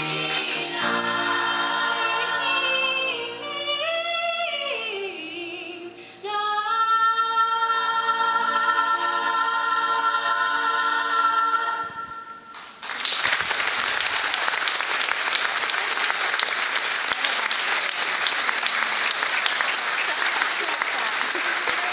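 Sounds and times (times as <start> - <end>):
girls' choir singing chord: 0.0 - 4.5, 7.1 - 12.4
audience applause: 12.5 - 21.9.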